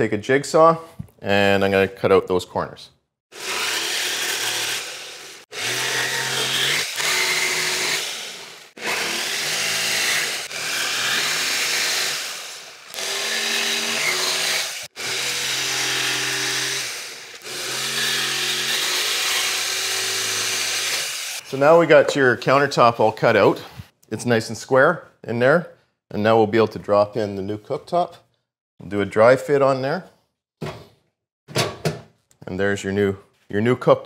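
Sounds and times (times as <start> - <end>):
jigsaw cutting plywood: 3.3 - 21.5.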